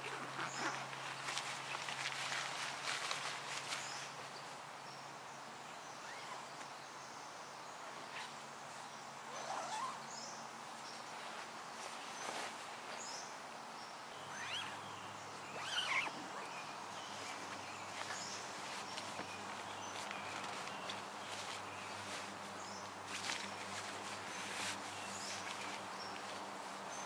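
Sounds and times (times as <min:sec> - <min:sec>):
soft steady hiss: 0:00.0 - 0:27.0
bird calls and chirps: 0:14.1 - 0:27.0.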